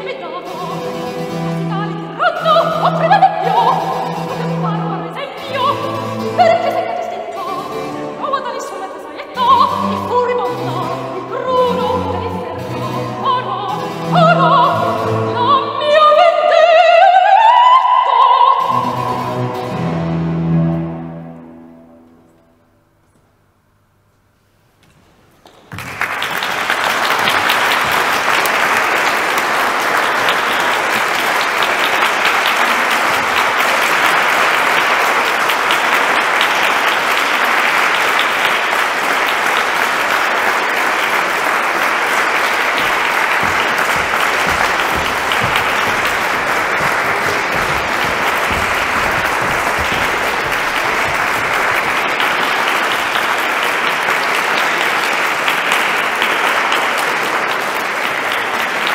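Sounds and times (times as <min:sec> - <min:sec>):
audience applauding: 0:25.4 - 0:58.9.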